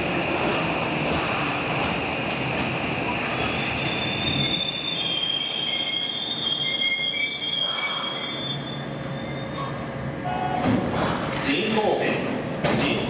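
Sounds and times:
rumble of train wheels: 0.0s - 13.0s
train brakes squealing: 3.1s - 9.8s.

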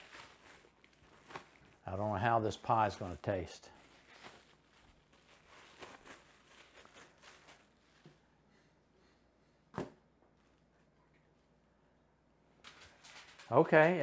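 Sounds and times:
plastic wrap crinkling: 0.0s - 8.2s.

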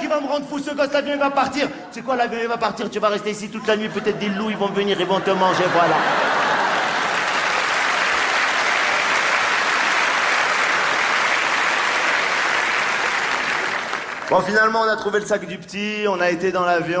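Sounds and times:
audience applauding: 5.5s - 14.7s.

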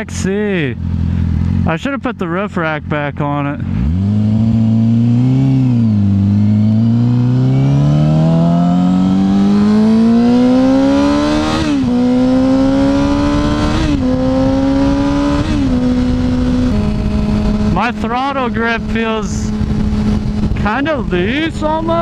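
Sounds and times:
motorcycle engine accelerating: 0.0s - 22.0s
wind rush: 8.1s - 22.0s.

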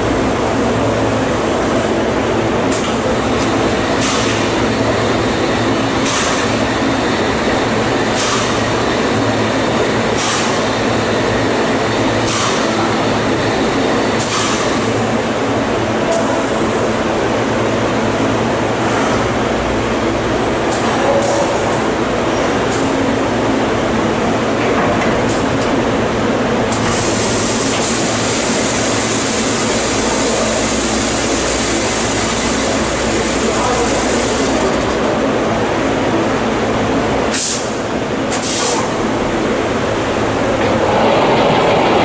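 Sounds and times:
machine running noise: 0.0s - 42.0s
pneumatic hiss: 37.3s - 38.9s.

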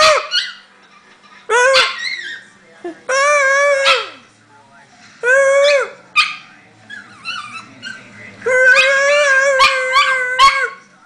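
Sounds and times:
dog yip: 0.0s - 0.7s, 1.5s - 2.4s, 3.6s - 4.2s, 5.6s - 10.8s
dog howling high-pitched: 5.2s - 6.0s, 8.5s - 10.8s
dog whimpering: 6.9s - 10.8s.

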